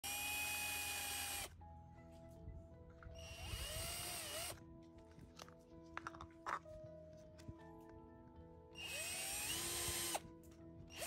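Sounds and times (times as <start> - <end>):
cordless drill whining: 0.0 - 1.5, 3.2 - 4.6, 8.8 - 10.3.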